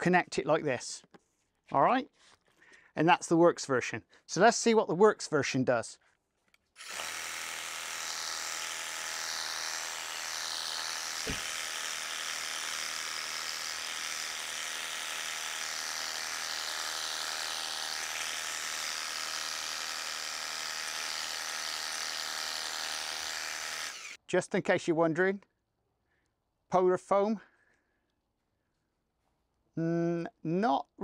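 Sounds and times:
pressure washer motor humming: 6.8 - 24.2
short thump: 11.2 - 11.5.

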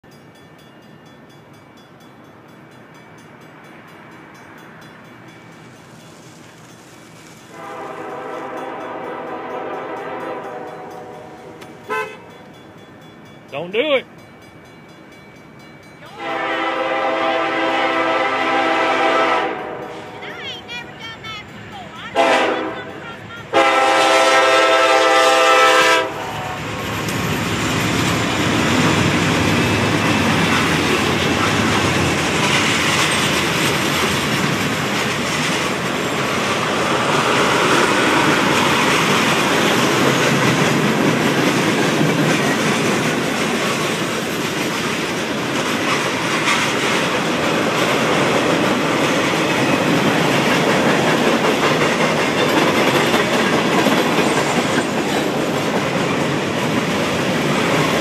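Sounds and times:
locomotive horn: 7.5 - 12.4, 16.1 - 20.2, 22.1 - 26.8
train wheels clacking over rail joints: 26.6 - 58.0.

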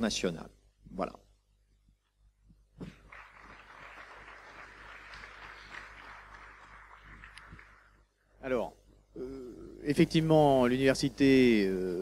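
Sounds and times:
faint audience applause: 2.8 - 8.2.

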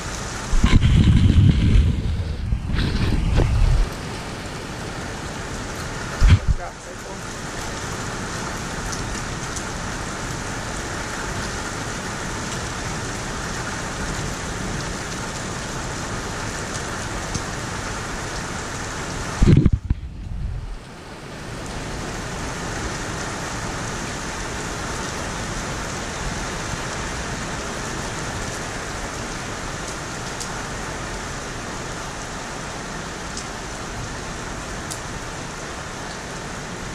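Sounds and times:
hailstones ticking: 0.0 - 4.2
heavy rain hissing: 0.0 - 36.9.

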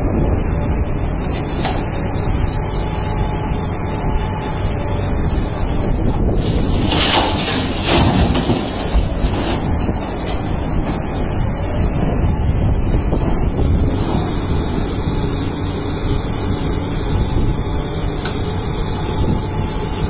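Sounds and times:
excavator diesel engine running: 0.0 - 20.0
rock and gravel pouring into truck: 6.4 - 11.3.

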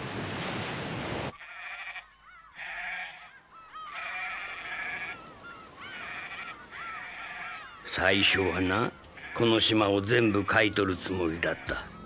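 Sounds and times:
sheep bleating: 1.4 - 5.2, 5.9 - 7.7, 9.0 - 12.0.

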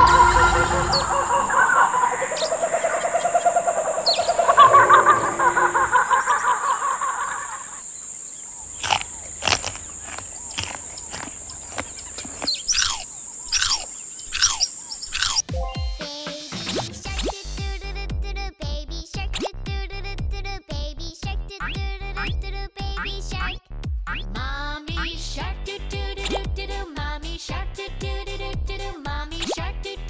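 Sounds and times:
steady high-pitched whine: 0.0 - 10.4
birds warbling and chirping: 0.0 - 15.5.

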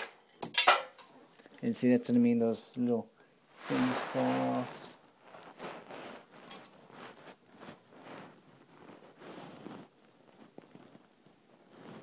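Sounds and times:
hands rustling on microphone: 3.5 - 12.0.

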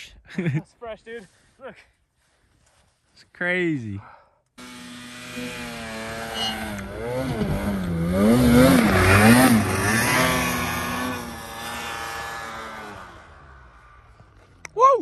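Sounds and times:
snowmobile engine revving: 4.6 - 14.6.

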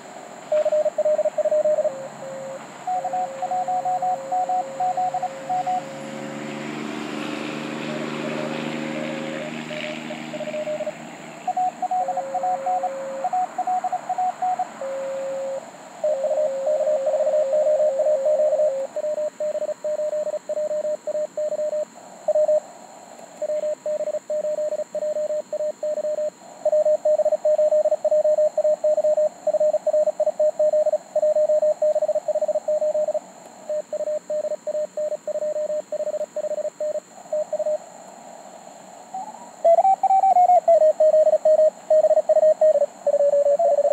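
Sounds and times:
morse code beeps: 0.5 - 5.9, 10.3 - 10.9, 11.5 - 22.6, 23.4 - 37.8.

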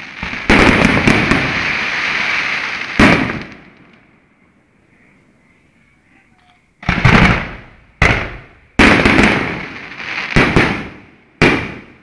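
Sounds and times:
fireworks bursting: 0.0 - 4.1, 5.4 - 12.0.

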